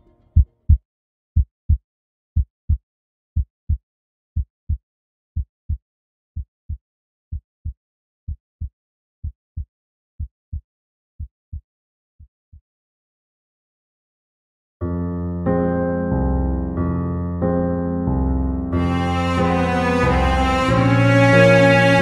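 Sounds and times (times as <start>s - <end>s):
heartbeat thumps: 0.4s - 0.8s.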